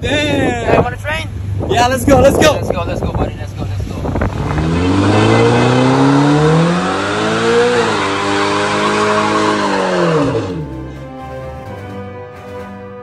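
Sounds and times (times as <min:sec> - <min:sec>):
sports car engine revving: 0:04.0 - 0:11.1.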